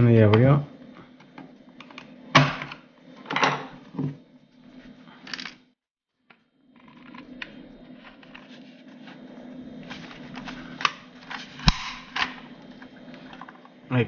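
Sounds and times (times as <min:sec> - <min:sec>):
low hum: 0:06.3 - 0:14.0
plastic snap: 0:11.6 - 0:12.4.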